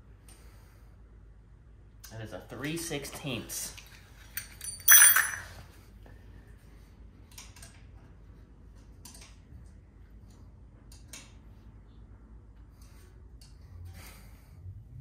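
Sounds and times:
metallic clink: 0:04.3 - 0:05.6.

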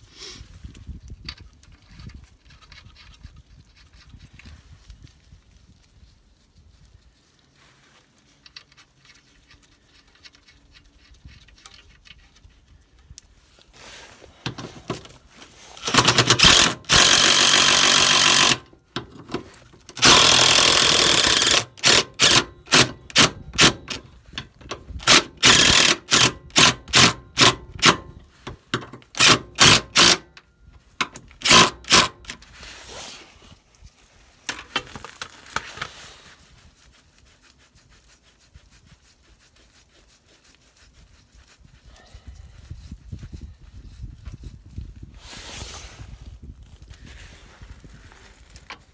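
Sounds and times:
impact wrench hammering bolts: 0:15.8 - 0:24.1, 0:25.0 - 0:28.1, 0:28.7 - 0:30.4, 0:31.0 - 0:32.4.

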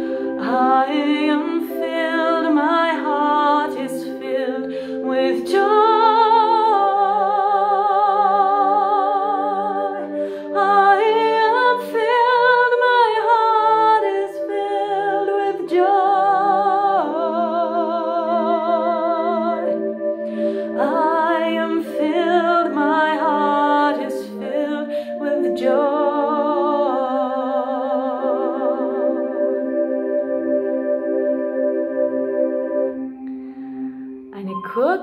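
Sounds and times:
woman singing with vibrato: 0:00.0 - 0:29.3, 0:34.4 - 0:35.0
sustained instrument chord: 0:28.1 - 0:35.0.

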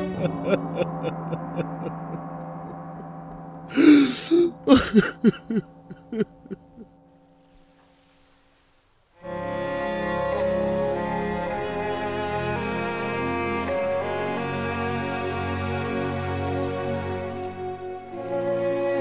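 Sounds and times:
man crying out and sobbing: 0:00.0 - 0:06.9
soft music score: 0:00.0 - 0:19.0
sad bowed strings: 0:09.2 - 0:19.0.

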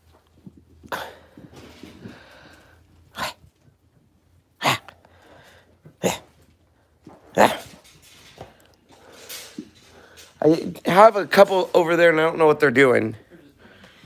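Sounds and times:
puppy snorting: 0:03.1 - 0:03.7.

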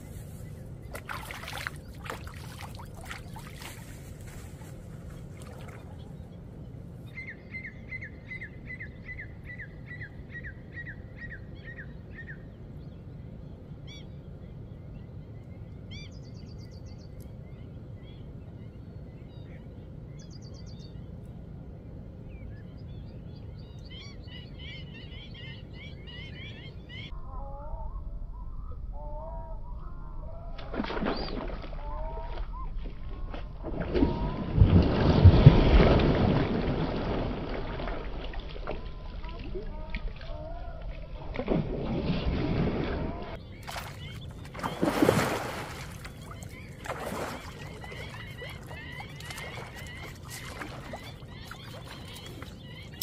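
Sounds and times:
splashing in shallow water: 0:00.0 - 0:06.2, 0:30.5 - 0:53.0
steady low rumble: 0:00.0 - 0:44.7
birds trilling and chattering: 0:21.9 - 0:34.6, 0:36.9 - 0:53.0.

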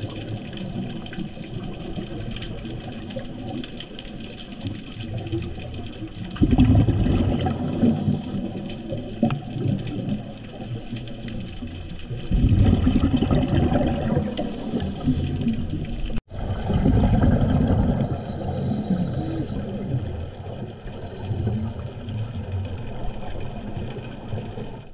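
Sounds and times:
underwater exhaust bubbles: 0:00.0 - 0:24.9
underwater water noise: 0:00.0 - 0:24.9.

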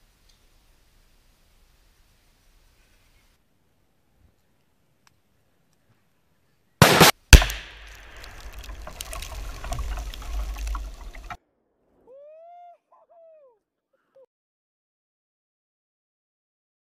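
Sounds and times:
rifle shot crack: 0:06.8 - 0:10.8
explosion with rumbling tail: 0:07.4 - 0:11.4.

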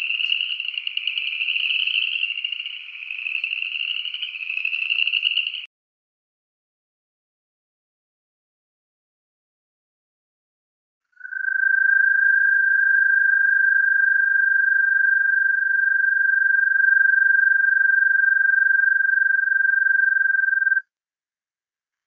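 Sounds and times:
toad trilling: 0:00.0 - 0:05.7, 0:11.2 - 0:20.8.

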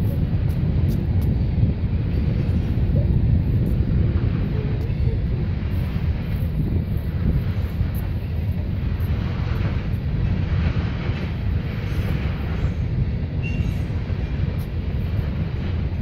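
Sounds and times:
freight train rumbling on rails: 0:00.0 - 0:16.0
high squeal: 0:13.4 - 0:13.9.

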